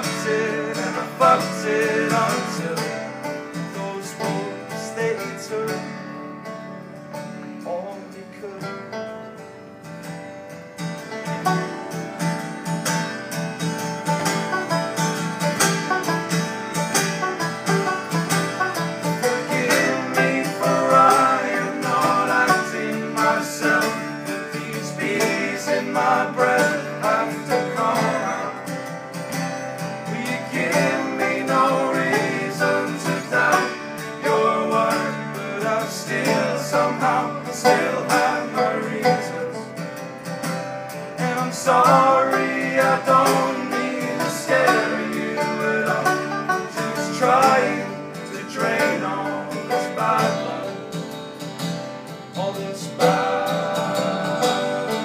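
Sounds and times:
voices singing along: 0.0 - 5.8, 18.2 - 39.8, 41.2 - 51.2, 52.3 - 55.0
fast-picked banjo: 0.0 - 55.0
strummed acoustic guitars: 0.0 - 55.0.

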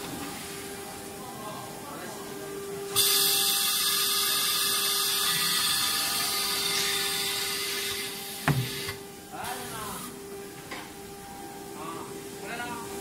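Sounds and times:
router whirring and hissing: 2.9 - 10.2.

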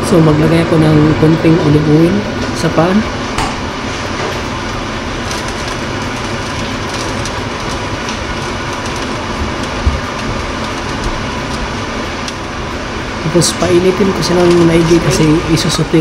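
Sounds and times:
kitchen equipment rumbling: 0.0 - 16.0.

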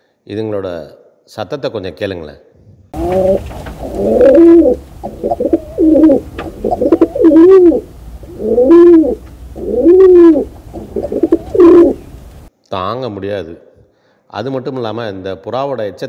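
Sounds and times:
pigeons cooing: 3.0 - 12.5.

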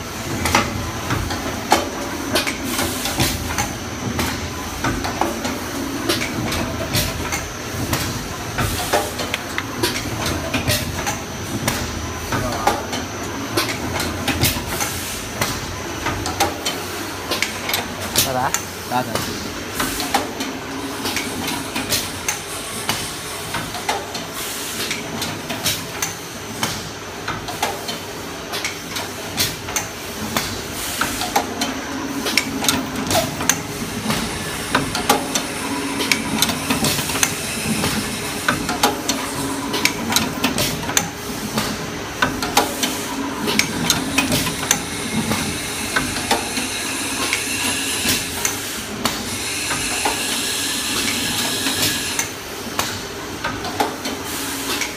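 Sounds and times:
steady machine hiss: 44.0 - 52.5.

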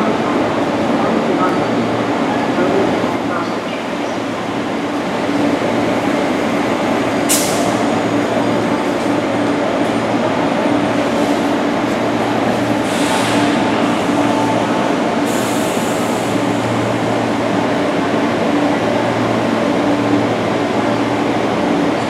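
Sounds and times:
electric train hum: 0.0 - 22.0.

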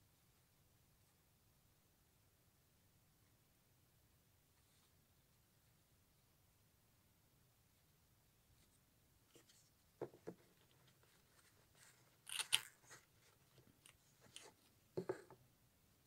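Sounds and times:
soft taps and rustles: 8.6 - 12.0.

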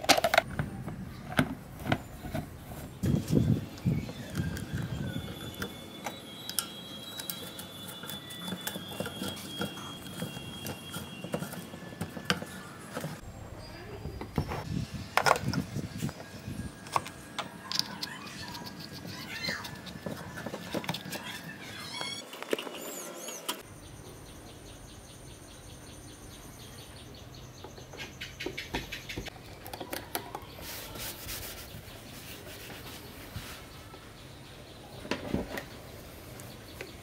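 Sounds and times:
bird chirps: 22.8 - 29.3.

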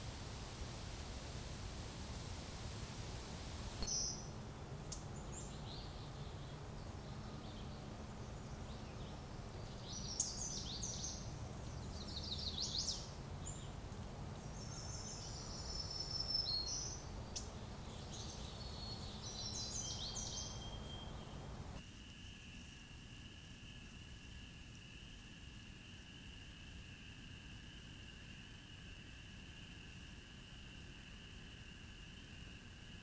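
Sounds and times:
microphone hiss: 0.0 - 33.0
songbirds singing: 3.6 - 21.8.

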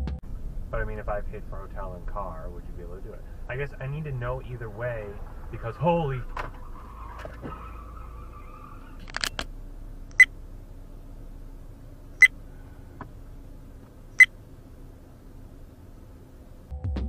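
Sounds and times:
faint steady hum: 0.2 - 16.7
sharp clicks: 9.0 - 9.5, 10.1 - 10.3.

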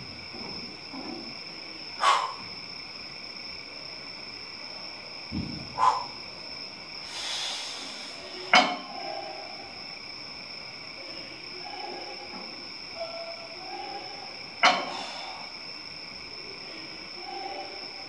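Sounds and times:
dull thump: 5.3 - 5.8.

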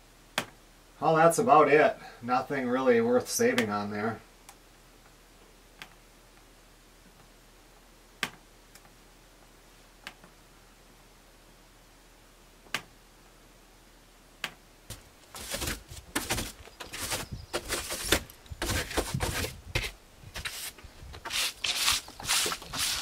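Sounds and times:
rustling and knocking handling noise: 14.9 - 23.0.

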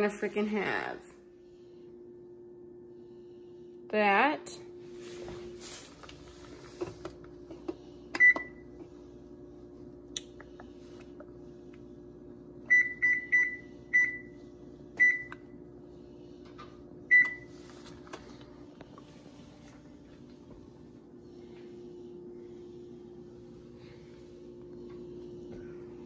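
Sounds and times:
steady low hum: 0.0 - 26.0
appliance control panel beeps: 8.1 - 8.8, 12.7 - 15.6, 17.0 - 17.6.

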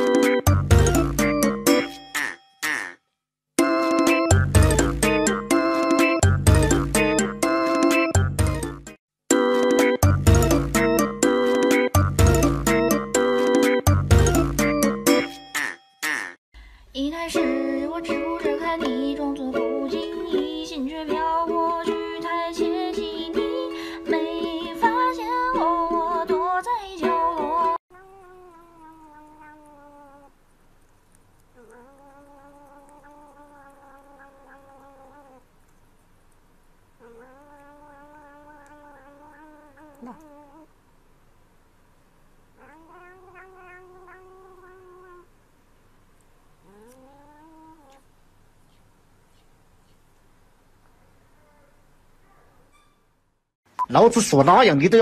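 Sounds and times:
upbeat ukulele music: 0.0 - 1.9, 3.6 - 15.4, 17.3 - 27.8
faint long cat cry: 27.9 - 30.4, 31.6 - 35.4, 37.0 - 40.7, 42.6 - 45.3, 46.6 - 48.1.

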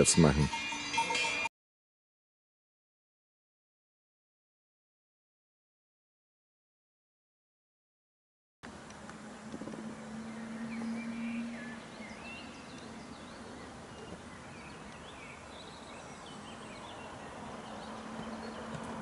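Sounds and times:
small birds chirping: 8.8 - 19.0.

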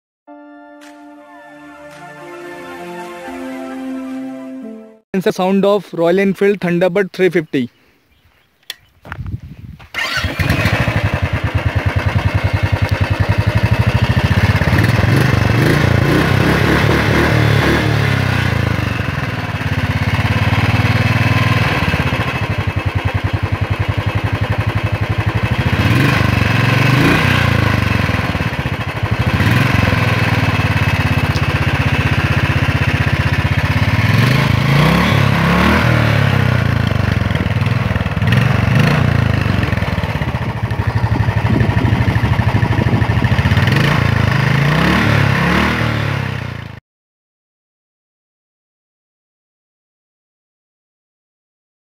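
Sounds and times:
motorcycle engine starting and idling: 9.7 - 46.8
engine throttle blips: 9.9 - 44.9.

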